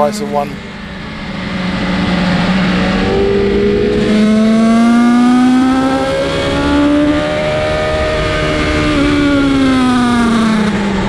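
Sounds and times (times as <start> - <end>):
motorcycle engine accelerating: 0.0 - 11.0.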